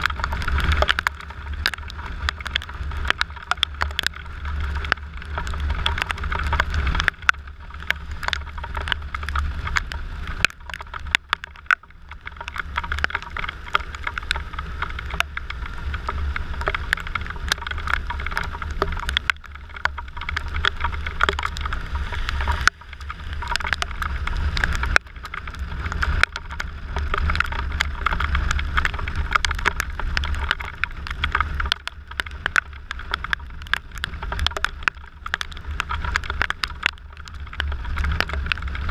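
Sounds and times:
raindrops ticking on camera: 0:00.0 - 0:38.9
wind rumble on microphone: 0:00.0 - 0:38.9
tyres hissing on wet road: 0:11.9 - 0:32.4.

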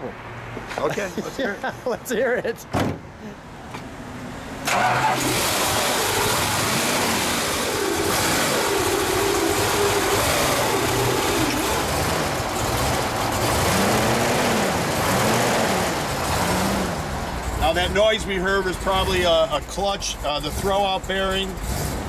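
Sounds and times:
car engine running loud: 0:04.6 - 0:22.0.

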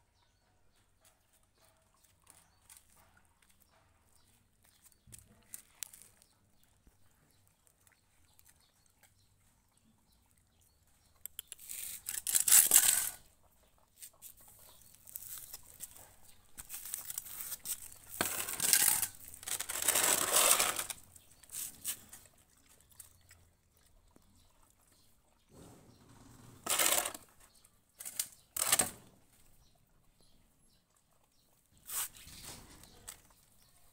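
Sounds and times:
dogs chewing and licking: 0:00.4 - 0:11.7, 0:21.0 - 0:25.5, 0:29.6 - 0:31.8.

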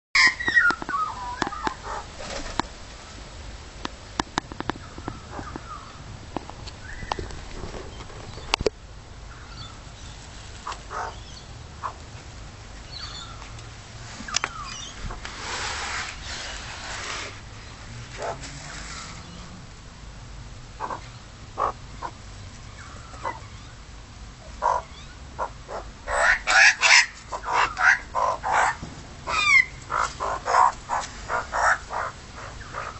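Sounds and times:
magpies calling: 0:00.2 - 0:02.4, 0:04.7 - 0:06.0, 0:10.6 - 0:12.0, 0:18.2 - 0:19.5, 0:20.8 - 0:23.8, 0:24.4 - 0:32.9.

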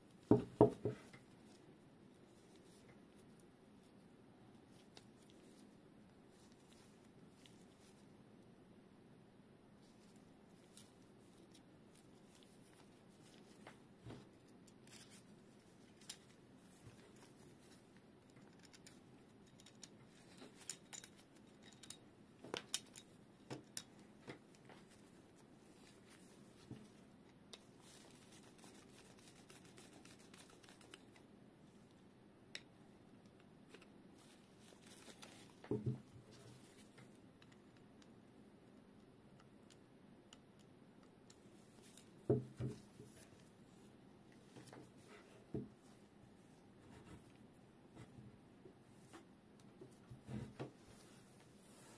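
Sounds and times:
small parts clicking and tapping: 0:14.4 - 0:25.1.

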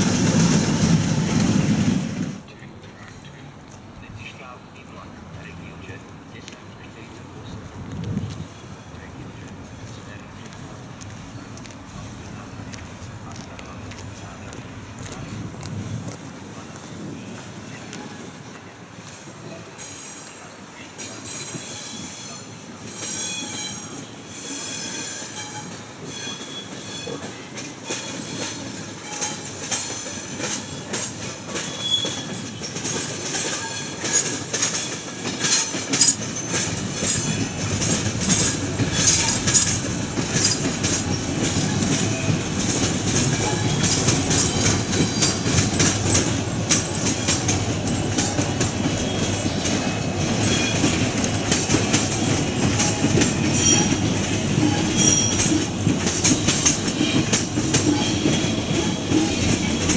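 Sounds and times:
train low rumble: 0:00.0 - 0:59.9
train wheel squeal: 0:19.4 - 0:59.9
train wheel clicks: 0:22.9 - 0:59.9.

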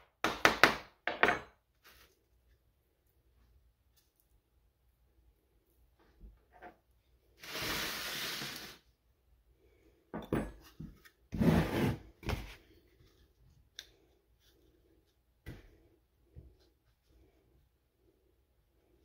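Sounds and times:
baking sheet scraping on wooden table: 0:07.4 - 0:08.9, 0:11.3 - 0:12.6.

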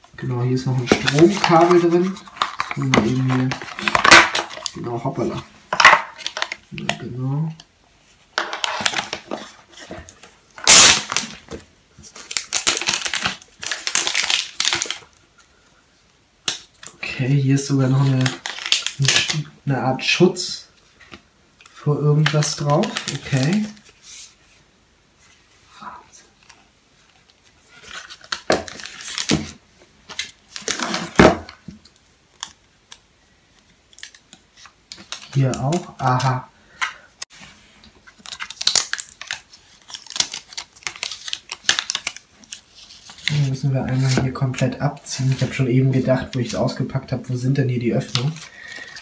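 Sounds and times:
plastic wrapping crinkling: 0:00.7 - 0:05.0, 0:08.4 - 0:15.2, 0:17.8 - 0:19.4, 0:21.7 - 0:24.3, 0:25.9 - 0:33.0, 0:37.6 - 0:47.0.

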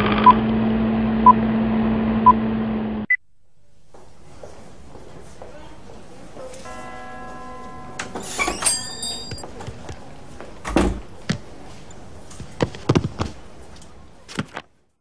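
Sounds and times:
brief high ringing: 0:06.7 - 0:09.4
sharp knocks and thumps: 0:12.5 - 0:13.4.

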